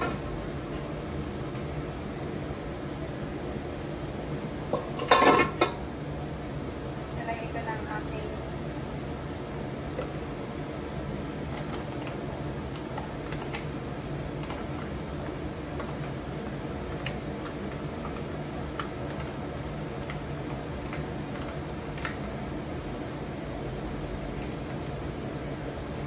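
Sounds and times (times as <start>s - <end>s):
steady low hum: 0.0s - 26.0s
food popping in a frying pan: 9.6s - 22.6s.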